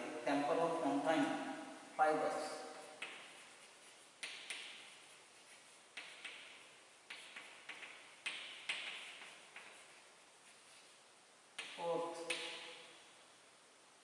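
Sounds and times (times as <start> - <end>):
chalk scratching across board: 2.4 - 11.0
chalk tapping on blackboard: 2.6 - 11.0, 11.6 - 12.9.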